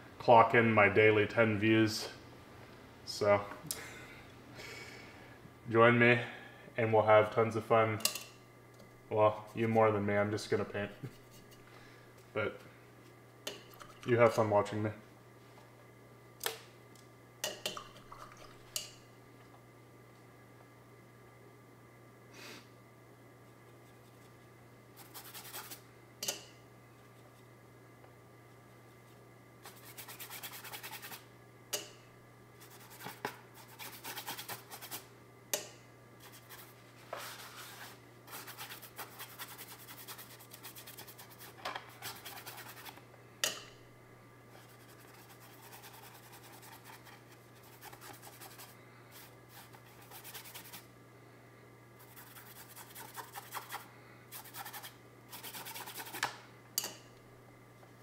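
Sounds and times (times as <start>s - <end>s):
steady low hum: 0.0s - 58.0s
brush scrubbing on canvas: 25.0s - 25.8s, 29.6s - 31.2s, 32.6s - 35.0s, 36.2s - 43.0s, 44.6s - 50.9s, 52.0s - 56.2s.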